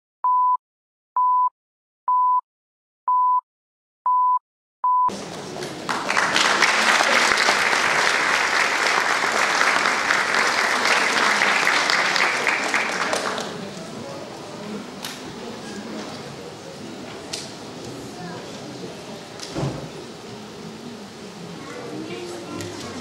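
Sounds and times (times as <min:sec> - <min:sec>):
short high-pitched beeps: 0:04.1 - 0:05.1
audience applause: 0:05.1 - 0:14.0.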